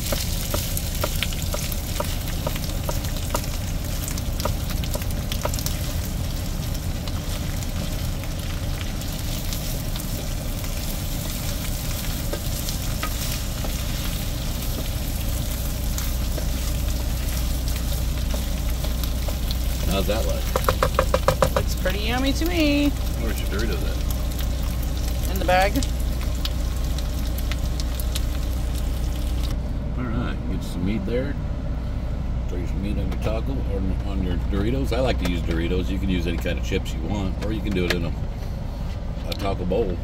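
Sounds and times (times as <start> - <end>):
meat sizzling in a skillet: 0.0 - 29.5
low hum: 0.0 - 40.0.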